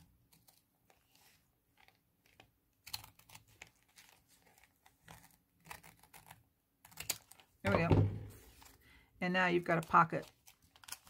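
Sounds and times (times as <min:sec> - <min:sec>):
scissors snipping paper: 0:01.8 - 0:07.5, 0:09.7 - 0:11.0.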